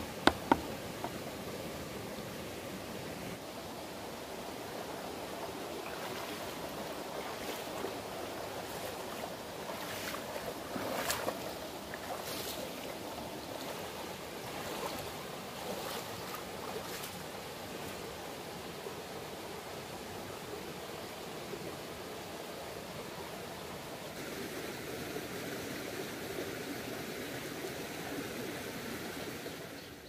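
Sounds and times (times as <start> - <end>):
rocky stream running: 0.0 - 30.0
feet splashing through water: 5.9 - 18.0.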